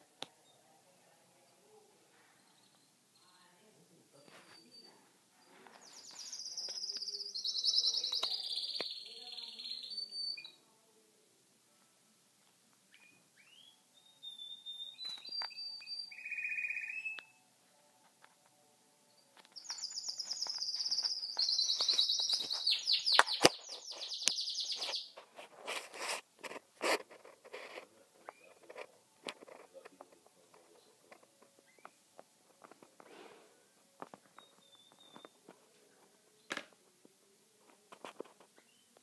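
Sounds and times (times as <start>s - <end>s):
canary singing: 2.4s - 10.7s, 12.9s - 17.5s, 19.1s - 25.2s, 28.2s - 28.9s, 30.6s - 32.2s, 34.2s - 35.6s, 38.6s - 39.0s.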